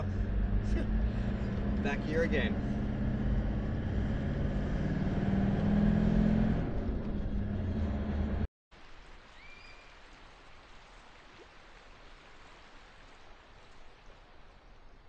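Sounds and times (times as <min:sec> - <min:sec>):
car engine droning: 0:00.0 - 0:08.5.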